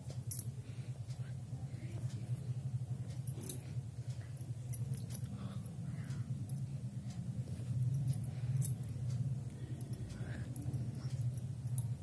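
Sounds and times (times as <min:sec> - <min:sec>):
steady low hum: 0:00.0 - 0:12.0
bangles clinking: 0:00.2 - 0:00.5, 0:03.1 - 0:12.0.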